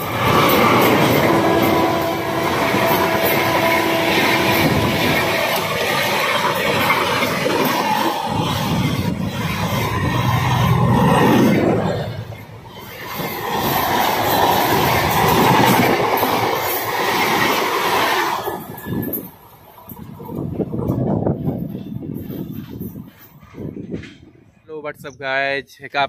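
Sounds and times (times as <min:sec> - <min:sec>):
train wheels rushing over rails: 0:00.0 - 0:24.6.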